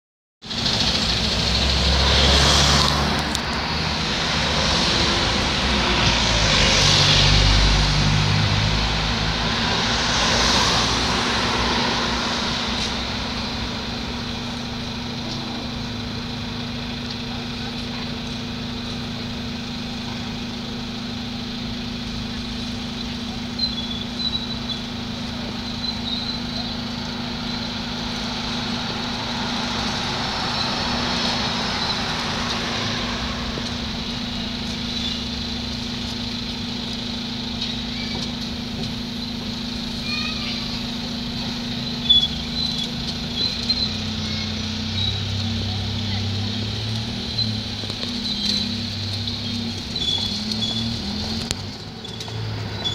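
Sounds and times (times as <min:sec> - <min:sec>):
bus engine idling: 0:00.4 - 0:52.9
street traffic noise: 0:00.4 - 0:52.9
car driving past: 0:00.6 - 0:16.0, 0:25.4 - 0:36.2.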